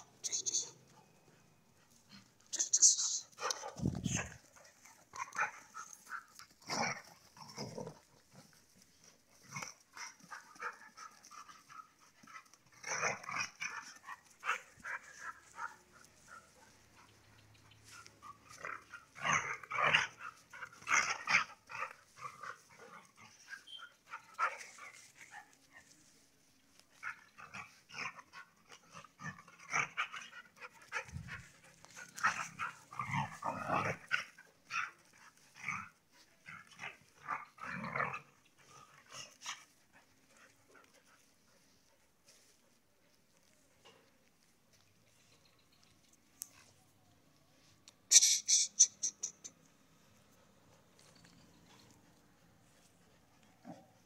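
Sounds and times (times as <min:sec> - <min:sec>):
dogs growling while play-fighting: 0:04.2 - 0:11.6, 0:12.2 - 0:14.1, 0:18.4 - 0:23.5, 0:27.0 - 0:31.1, 0:31.9 - 0:39.7.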